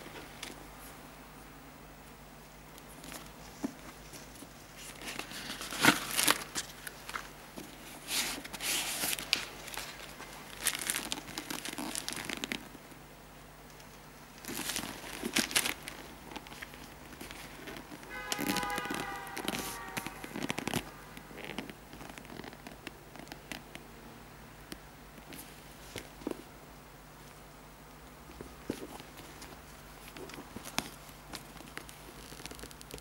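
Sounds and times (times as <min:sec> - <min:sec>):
plastic wrapping crinkling: 0:02.8 - 0:12.8, 0:14.3 - 0:23.7, 0:28.4 - 0:33.0.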